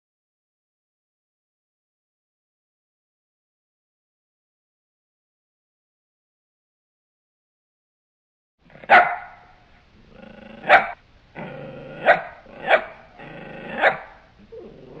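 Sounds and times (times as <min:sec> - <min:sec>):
dog growling: 0:08.7 - 0:09.0, 0:10.0 - 0:15.0
dog barking: 0:08.7 - 0:09.6, 0:10.6 - 0:11.0, 0:12.0 - 0:14.3.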